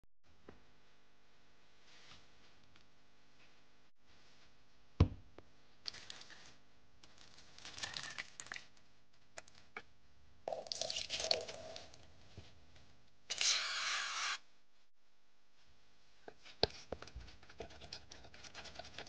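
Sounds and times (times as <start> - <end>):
liquid pouring into bowl: 10.5 - 12.0.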